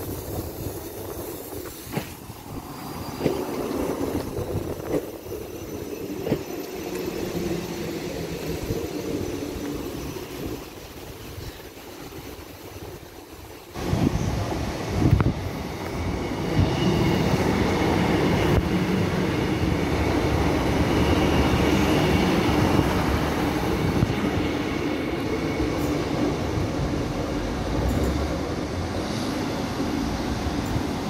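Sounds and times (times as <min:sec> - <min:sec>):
diesel train engine drone: 0:00.0 - 0:31.0
rail and wheel noise: 0:00.0 - 0:31.0
faint high wheel squeal: 0:02.5 - 0:13.0.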